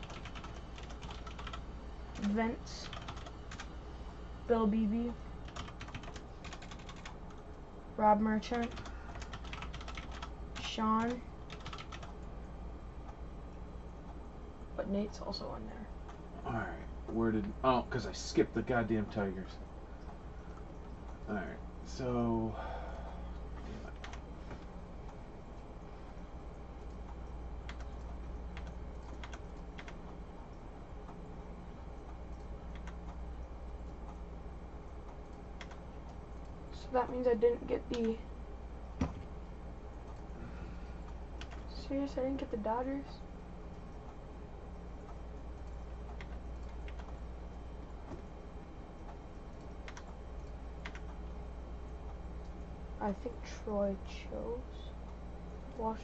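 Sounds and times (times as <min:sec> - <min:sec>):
computer keyboard and mouse clicks: 0:00.0 - 0:01.6, 0:02.2 - 0:03.7, 0:05.5 - 0:07.4, 0:08.5 - 0:12.2, 0:23.9 - 0:24.7, 0:26.8 - 0:30.2, 0:32.0 - 0:33.2, 0:35.1 - 0:36.4, 0:37.8 - 0:38.2, 0:41.4 - 0:41.7, 0:45.0 - 0:47.3, 0:49.0 - 0:51.3
steady low hum: 0:00.0 - 0:56.0.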